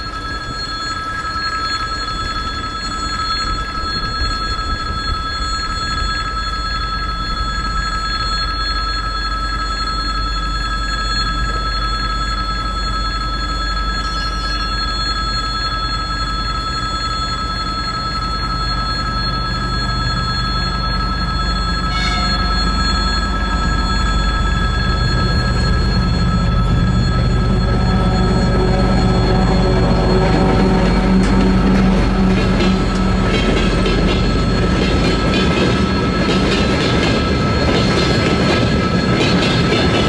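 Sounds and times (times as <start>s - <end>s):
level crossing bell ringing: 0.0s - 40.0s
diesel locomotive rumble: 15.9s - 40.0s.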